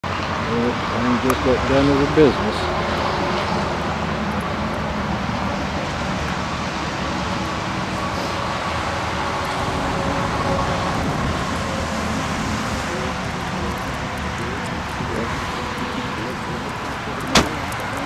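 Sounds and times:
vehicle rumble: 0.0 - 18.0.

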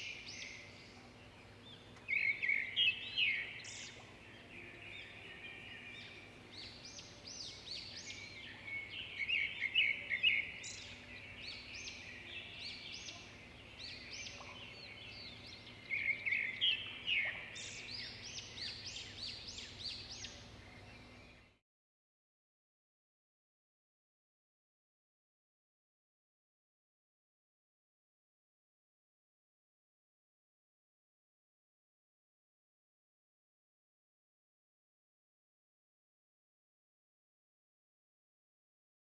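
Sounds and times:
small birds chirping: 0.0 - 21.6.

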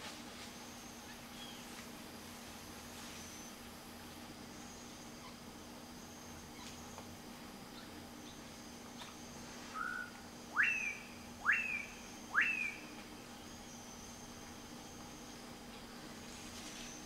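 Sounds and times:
bird whistling call: 9.7 - 12.9.

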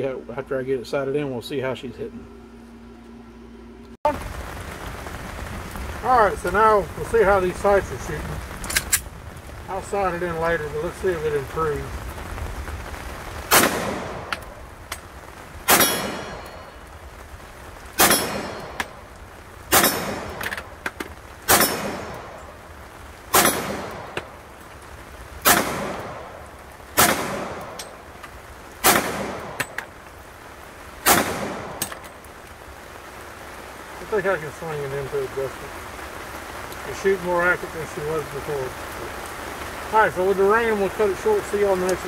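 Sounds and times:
light rain hiss: 0.0 - 42.0
pistol shots echoing: 13.5 - 14.3, 15.7 - 16.7, 19.7 - 20.5, 21.5 - 22.4, 23.3 - 24.2, 25.4 - 26.3, 27.0 - 27.8, 28.8 - 29.8, 31.0 - 31.9.

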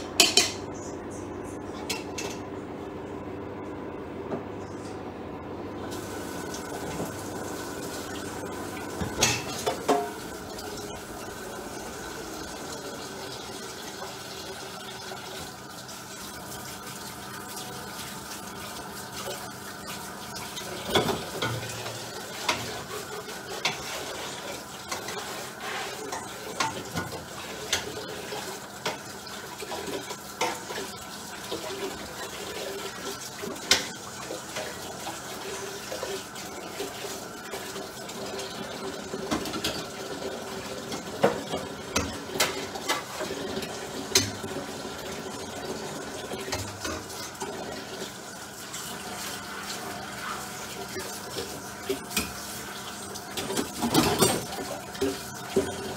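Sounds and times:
dishes and pans clinking: 0.1 - 0.8, 9.0 - 10.2, 53.4 - 55.9
tap water running into sink: 5.9 - 55.9.

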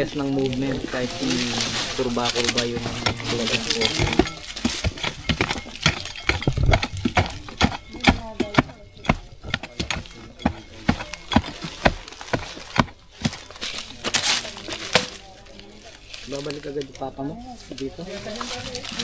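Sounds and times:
person speaking: 0.0 - 19.0
tool knocking: 2.0 - 13.8.

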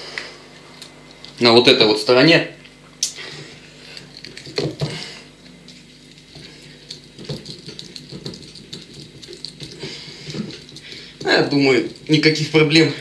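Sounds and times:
awl scratching coconut shell: 6.2 - 12.6.

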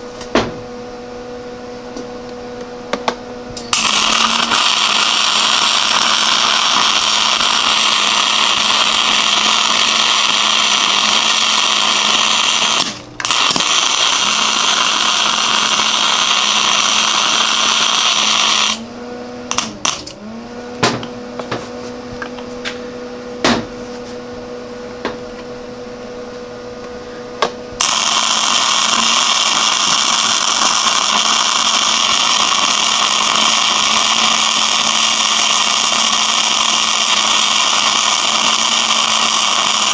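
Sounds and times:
steady hum: 0.0 - 39.9
welder arc crackling and hissing: 3.0 - 18.9, 19.5 - 20.2, 27.4 - 39.9.

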